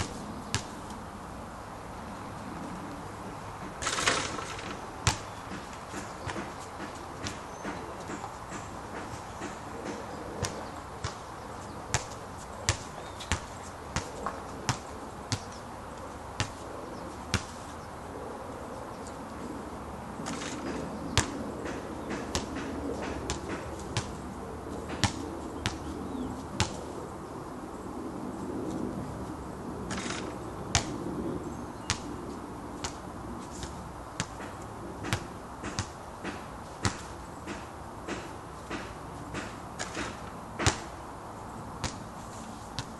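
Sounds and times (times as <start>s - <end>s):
basketball bouncing: 0.0s - 0.7s, 3.8s - 11.2s, 11.9s - 15.5s, 17.3s - 17.5s, 20.2s - 24.2s, 24.9s - 25.8s, 26.6s - 26.8s, 29.9s - 31.0s, 34.2s - 40.9s.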